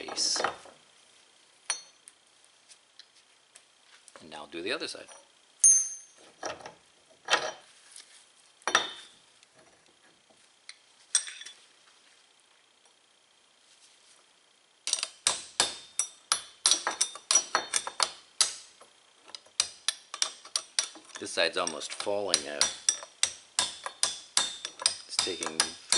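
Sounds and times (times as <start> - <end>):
hammer tapping metal punch: 14.9 - 18.6, 19.4 - 25.9.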